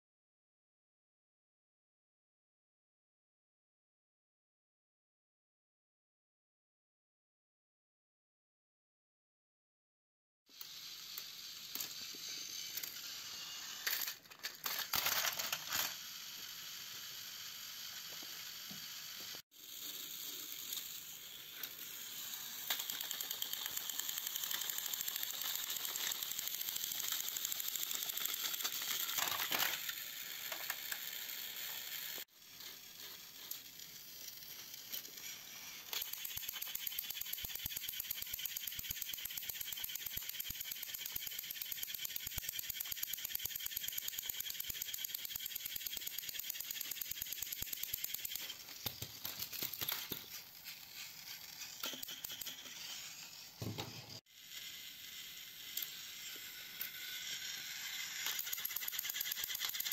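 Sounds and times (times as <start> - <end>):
toy train motor whirring: 10.5 - 59.9.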